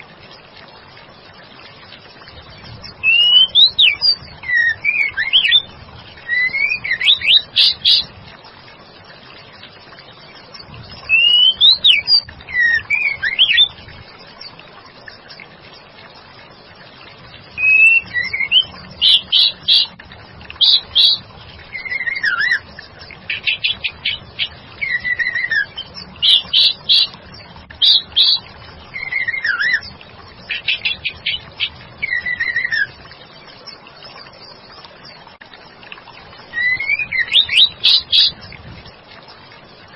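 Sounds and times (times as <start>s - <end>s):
bird whistling calls: 3.0s - 8.1s, 11.1s - 13.7s, 17.6s - 20.0s, 20.6s - 22.6s, 23.3s - 27.1s, 27.8s - 29.9s, 30.5s - 32.9s, 36.5s - 38.4s.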